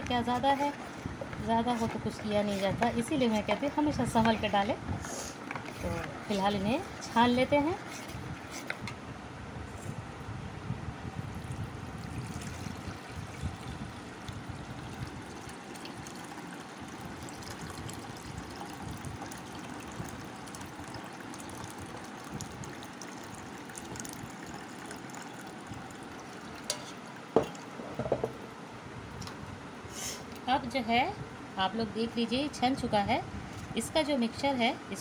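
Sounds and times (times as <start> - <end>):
liquid pouring through strainer: 11.3 - 28.1.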